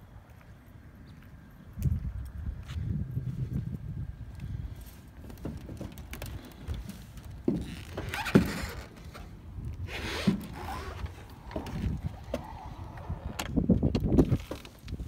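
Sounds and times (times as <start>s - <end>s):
heavy footsteps on aircraft wing: 1.8s - 12.6s.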